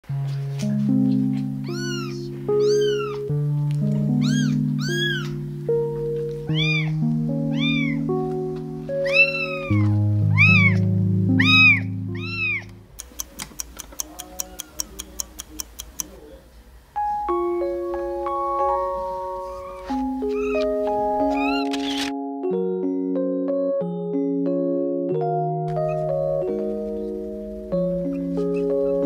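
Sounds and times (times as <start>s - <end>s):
soft background music: 0.0s - 13.3s, 16.9s - 29.0s
kitten mewing: 1.6s - 3.4s, 4.1s - 5.4s, 6.5s - 8.1s, 9.0s - 16.1s, 19.6s - 21.9s.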